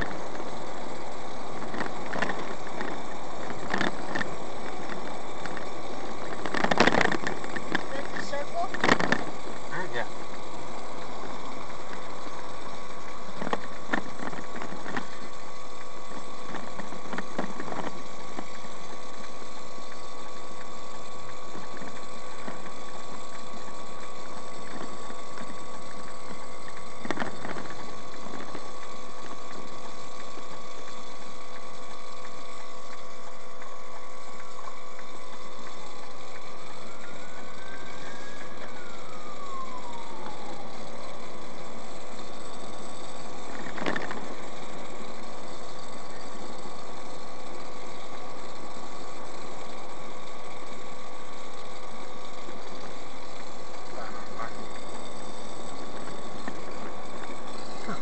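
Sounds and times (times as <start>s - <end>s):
car road and engine noise: 0.0s - 58.0s
siren: 36.1s - 44.1s, 52.8s - 58.0s.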